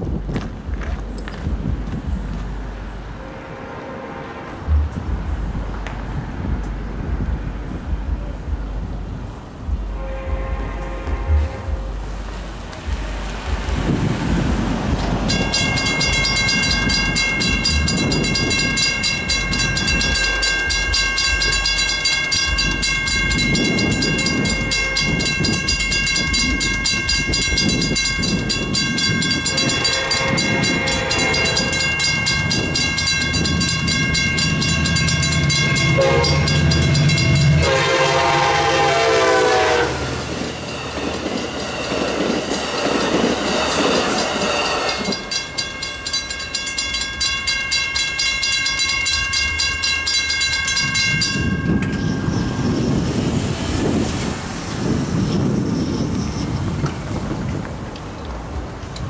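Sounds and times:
diesel locomotive engine hum: 0:00.0 - 0:59.0
train horn: 0:03.2 - 0:04.9, 0:09.9 - 0:12.0, 0:23.6 - 0:25.8, 0:29.4 - 0:33.0, 0:34.6 - 0:40.3
rail clatter: 0:04.4 - 0:59.0
crossing bell ringing: 0:15.1 - 0:53.8.

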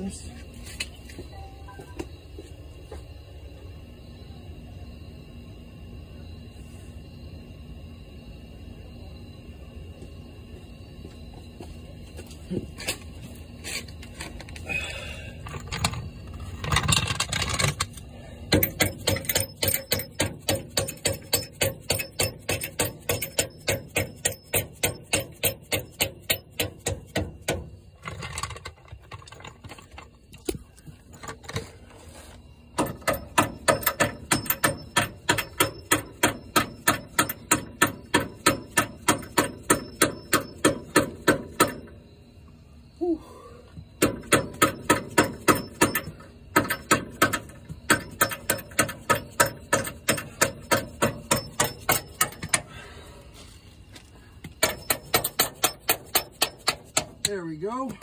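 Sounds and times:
hammer striking metal bolt: 0:18.5 - 0:27.7, 0:32.8 - 0:41.9, 0:44.0 - 0:52.7, 0:54.6 - 0:57.2.

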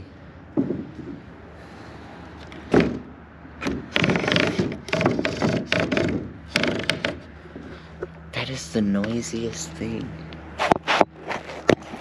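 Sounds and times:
barn door grinding and squealing: 0:02.7 - 0:07.9.

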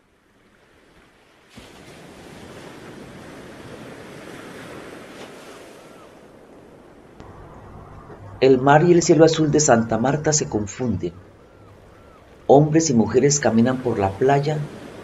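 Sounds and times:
ocean surf washing onto beach: 0:00.8 - 0:15.0.

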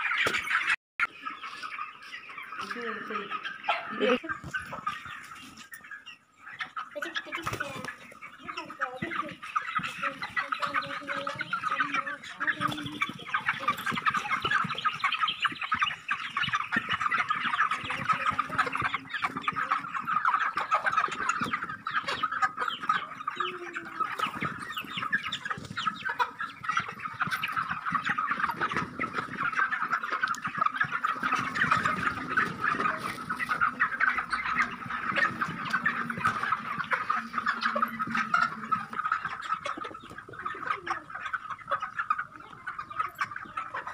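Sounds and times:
chickens clucking: 0:00.0 - 0:43.9.

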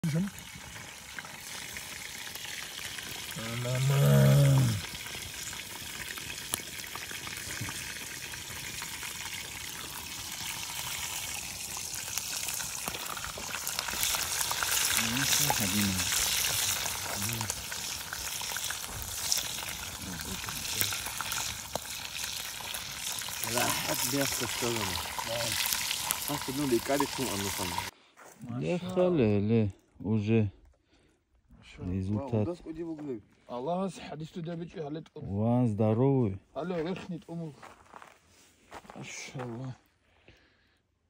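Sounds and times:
hot oil sizzling in a frying pan: 0:00.0 - 0:28.0.

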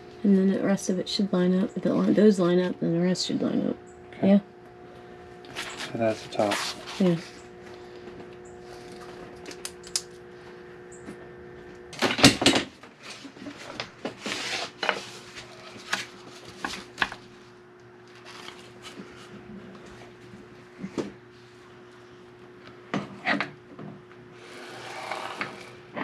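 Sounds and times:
steady hum: 0:00.0 - 0:26.0
paper rustling: 0:18.1 - 0:19.3.

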